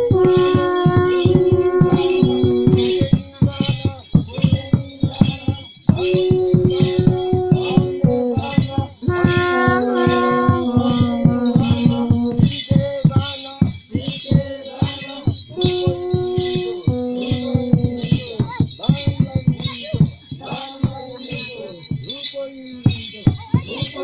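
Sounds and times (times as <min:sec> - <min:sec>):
bright jingling: 0:00.0 - 0:24.0.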